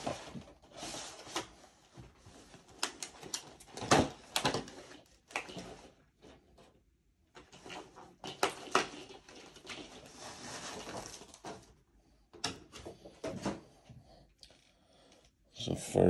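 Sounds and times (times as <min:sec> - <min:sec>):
packaging rustling and scraping: 0:00.0 - 0:06.7, 0:07.4 - 0:11.8.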